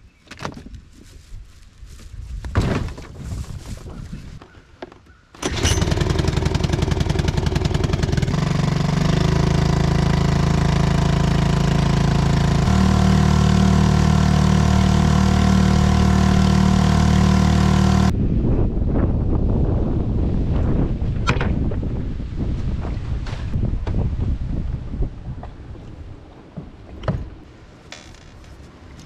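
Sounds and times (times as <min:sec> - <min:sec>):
wind rushing on microphone: 0:00.6 - 0:04.4, 0:18.1 - 0:27.3
outboard motor running: 0:05.4 - 0:18.1.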